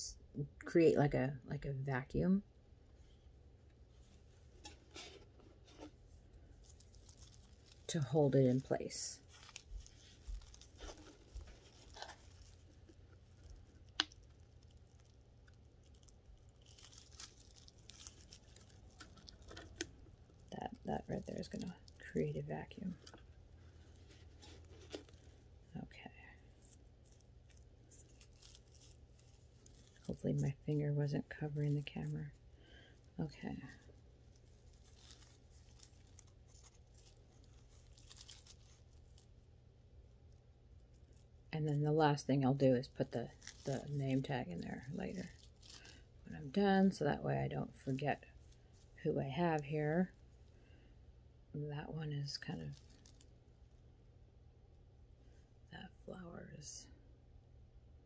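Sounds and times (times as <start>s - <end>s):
low steady hum: 0.0s - 58.0s
hands handling plastic pot: 17.4s - 25.5s.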